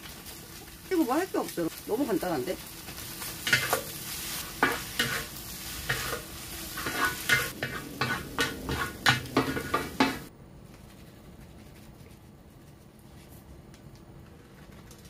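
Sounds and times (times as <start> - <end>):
food sizzling in a wok: 0.0 - 10.3
wooden spatulas scraping a wok: 2.9 - 10.3.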